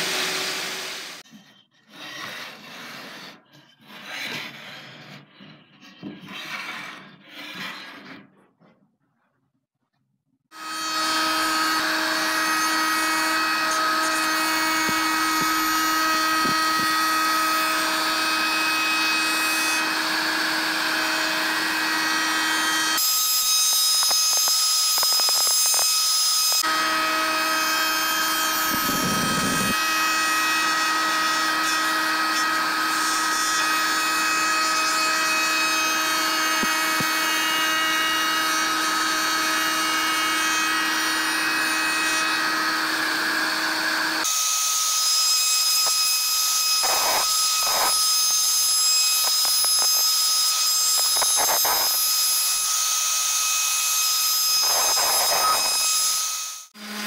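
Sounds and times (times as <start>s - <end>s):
electric router whining: 0.0s - 1.2s, 10.6s - 57.0s
router bit trimming wood hiss: 10.6s - 27.1s, 28.5s - 29.8s, 44.2s - 52.5s, 54.5s - 56.2s.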